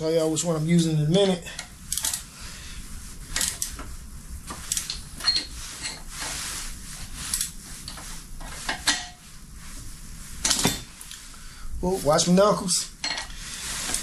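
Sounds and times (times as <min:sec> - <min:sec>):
metal tools clinking: 0:13.0 - 0:13.3.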